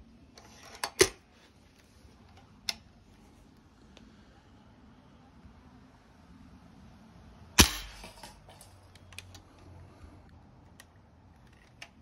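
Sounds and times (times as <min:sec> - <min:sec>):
air rifle shot: 0:07.6 - 0:08.4.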